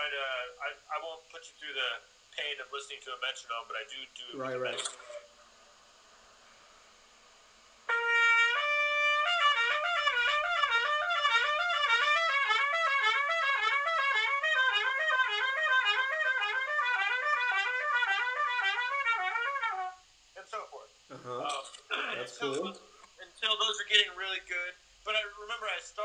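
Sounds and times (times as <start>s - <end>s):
trumpet playing fast lip slurs: 7.9s - 20.0s.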